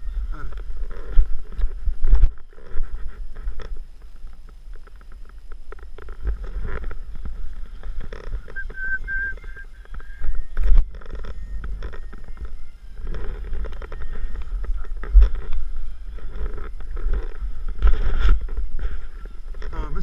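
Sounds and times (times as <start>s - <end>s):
low rumble and thumps: 0.0s - 20.0s
paraglider lines rustling and clicking: 0.0s - 20.0s
high whistled tone: 8.5s - 12.8s.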